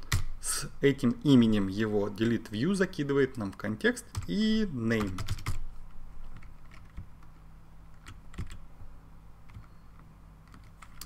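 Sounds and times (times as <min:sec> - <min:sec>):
faint low hum: 0:00.0 - 0:11.0
keyboard keystrokes: 0:05.0 - 0:05.6, 0:06.4 - 0:07.2, 0:08.0 - 0:08.6, 0:10.4 - 0:11.0.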